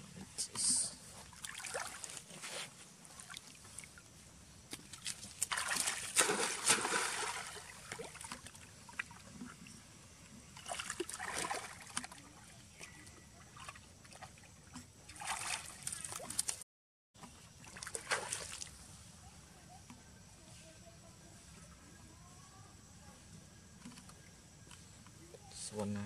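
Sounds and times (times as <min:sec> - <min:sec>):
water splashing and sloshing: 0:01.0 - 0:16.6, 0:17.2 - 0:19.0.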